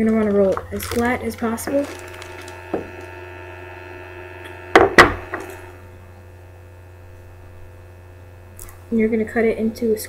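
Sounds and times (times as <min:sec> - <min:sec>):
steady faint hum: 0:00.0 - 0:10.0
roller knocking on tabletop: 0:04.7 - 0:05.5.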